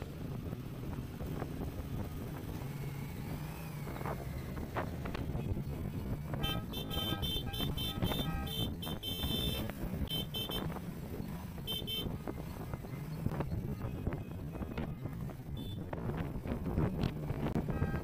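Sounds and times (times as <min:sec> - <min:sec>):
low rumble of engines: 0:00.0 - 0:18.0
vehicle horn tooting: 0:06.3 - 0:10.8, 0:11.7 - 0:12.2, 0:13.7 - 0:15.9, 0:17.7 - 0:18.0.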